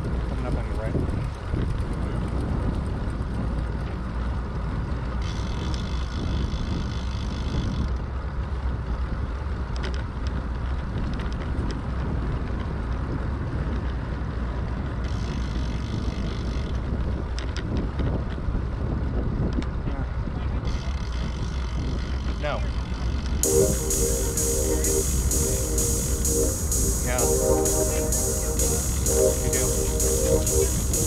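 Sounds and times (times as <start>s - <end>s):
higher whirring hiss: 23.4s - 31.0s.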